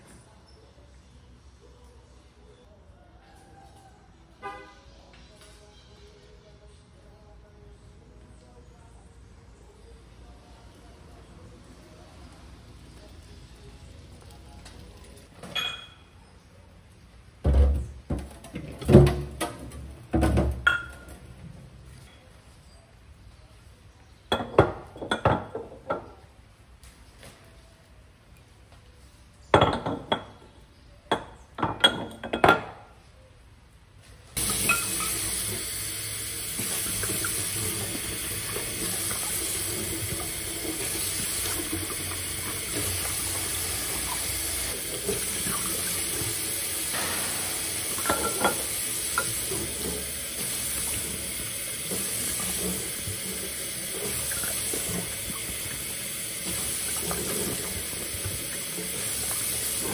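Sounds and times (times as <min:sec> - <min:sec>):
glass bottles clinking: 0:15.5 - 0:16.1, 0:20.2 - 0:21.2, 0:31.6 - 0:32.8, 0:34.4 - 0:35.5, 0:43.9 - 0:51.1
kitchen tap running: 0:34.4 - 0:59.9.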